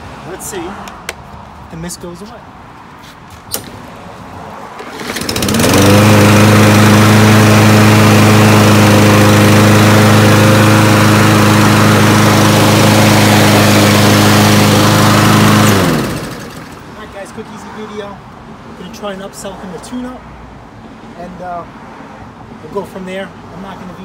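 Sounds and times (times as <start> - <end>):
lawn mower engine running: 4.8 - 16.9.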